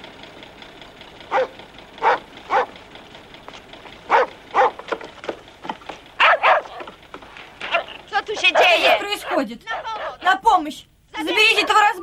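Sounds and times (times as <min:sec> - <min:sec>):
dog barking: 0:01.3 - 0:02.8, 0:04.1 - 0:04.9, 0:06.2 - 0:06.9, 0:07.6 - 0:10.3.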